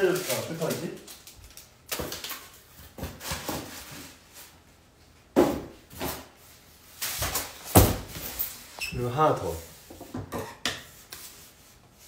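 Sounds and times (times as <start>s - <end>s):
foam boxes knocking and scuffing: 7.2s - 8.3s.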